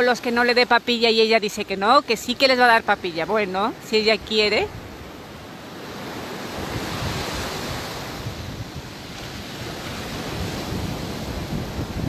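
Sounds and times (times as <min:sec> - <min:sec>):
small waves washing onto beach: 0:00.0 - 0:12.0
wind buffeting microphone: 0:04.2 - 0:12.0.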